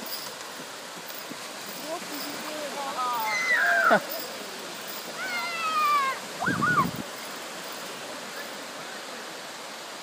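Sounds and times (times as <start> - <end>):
small waves breaking on shore: 0.0 - 10.0.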